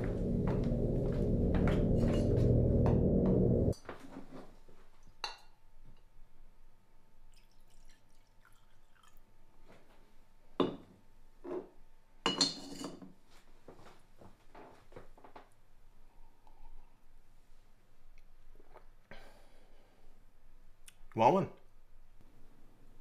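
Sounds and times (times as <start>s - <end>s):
low background music: 0.0s - 3.8s
liquor pouring into glass: 7.3s - 9.3s.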